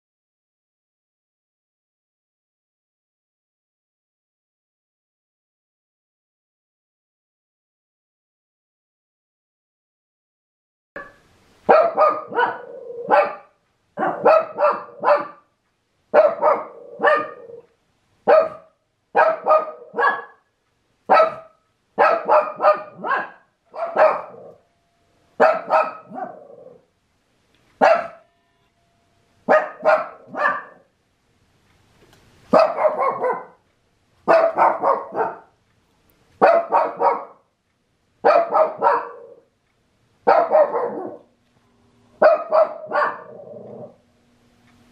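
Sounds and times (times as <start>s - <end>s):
dog barking: 11.0s - 15.5s, 16.1s - 20.5s, 21.1s - 24.6s, 25.4s - 26.8s, 27.8s - 28.3s, 29.5s - 30.9s, 32.5s - 33.6s, 34.2s - 35.6s, 36.4s - 37.5s, 38.2s - 39.5s, 40.2s - 41.3s, 42.2s - 44.0s.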